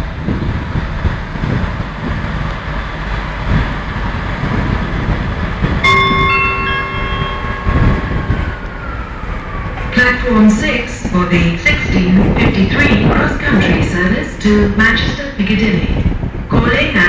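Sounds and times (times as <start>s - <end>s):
diesel train rumbling: 0.0s - 17.0s
station chime: 5.8s - 9.8s.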